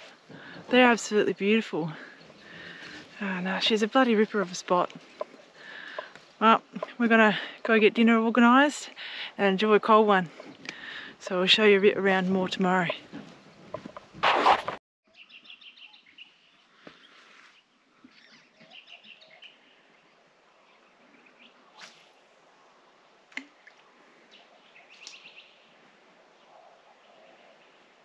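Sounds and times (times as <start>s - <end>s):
birds chirping: 0.0s - 14.1s, 15.1s - 21.6s.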